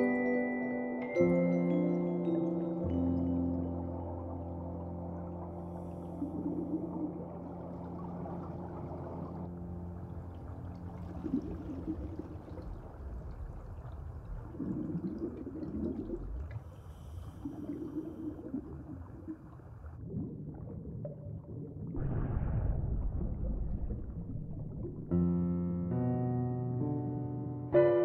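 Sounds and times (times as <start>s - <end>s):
soft bubbling gurgles: 1.7s - 25.4s
low underwater hum: 1.7s - 25.8s.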